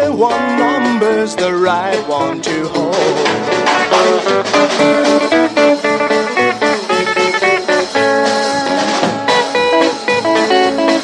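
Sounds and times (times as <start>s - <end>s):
rock and roll band: 0.0s - 11.0s
electric guitar run: 3.2s - 11.0s.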